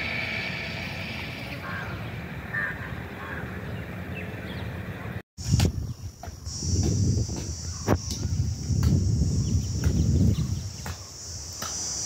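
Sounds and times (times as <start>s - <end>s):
insects droning: 0.0s - 3.4s, 5.4s - 12.0s
bird chirps: 9.3s - 11.2s.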